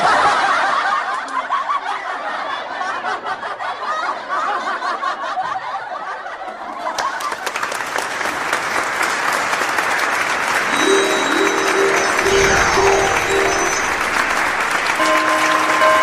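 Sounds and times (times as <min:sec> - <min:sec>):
laughter: 0:00.0 - 0:07.6
applause: 0:06.7 - 0:16.0
music of short repeated notes: 0:10.7 - 0:16.0.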